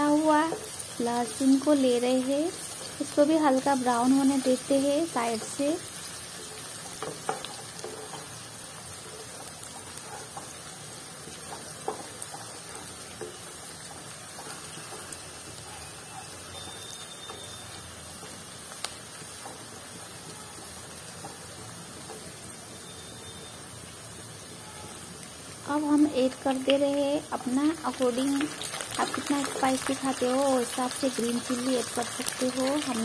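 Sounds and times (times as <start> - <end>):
onions sizzling in oil: 0.0 - 33.0.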